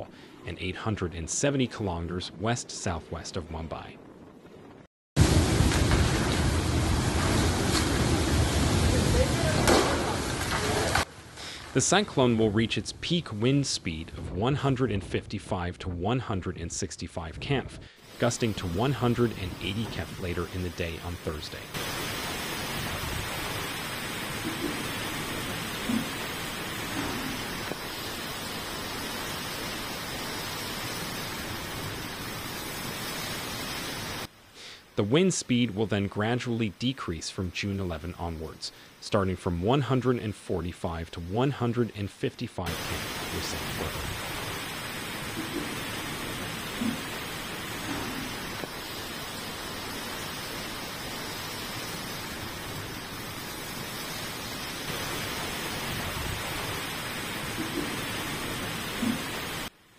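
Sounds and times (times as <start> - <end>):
storm wind: 0.0 - 11.7, 17.3 - 33.4, 42.7 - 59.7
driving rain: 2.3 - 14.0, 18.0 - 59.9.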